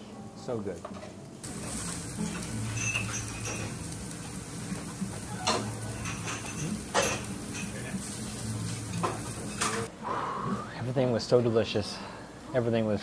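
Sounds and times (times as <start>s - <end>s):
tableware clinking: 0.8s - 4.2s, 4.8s - 9.9s.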